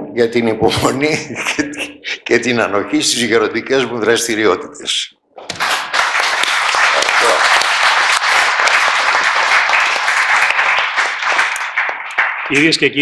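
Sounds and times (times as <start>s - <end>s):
audience applause: 5.4s - 13.0s.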